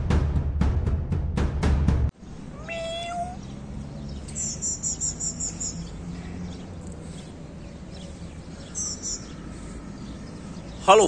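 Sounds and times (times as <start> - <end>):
outdoor background: 0.0 - 11.0
small bird chirping: 2.4 - 11.0
cat meowing: 2.5 - 3.4.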